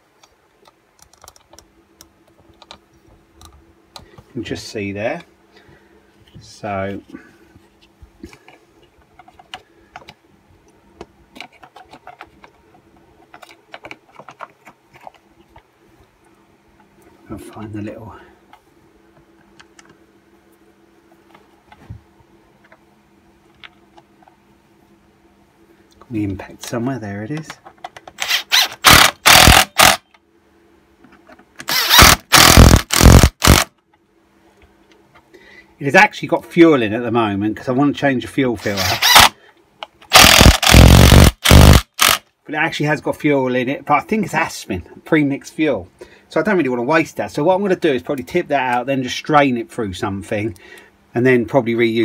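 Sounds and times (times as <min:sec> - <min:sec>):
hard plastic parts clicking: 0:11.0 - 0:15.7, 0:27.4 - 0:30.2
impact driver hammering: 0:28.8 - 0:30.0, 0:31.7 - 0:33.7, 0:40.1 - 0:42.2.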